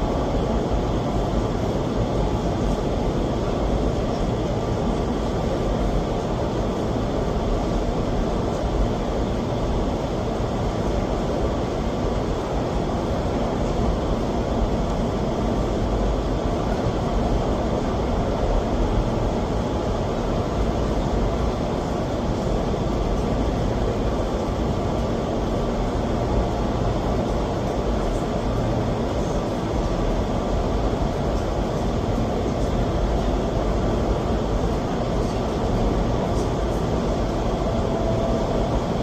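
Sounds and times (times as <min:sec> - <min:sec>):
rush of air and fan noise: 0:00.0 - 0:39.0.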